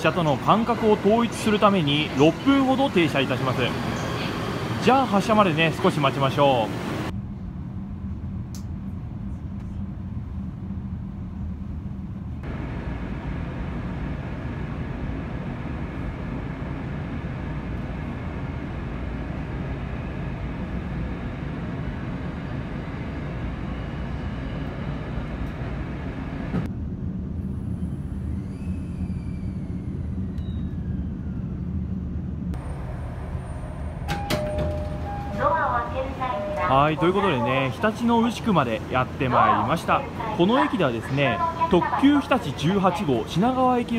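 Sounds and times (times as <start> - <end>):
train cabin hum: 0.0 - 27.3, 28.9 - 43.9
train rumbling: 0.0 - 43.9.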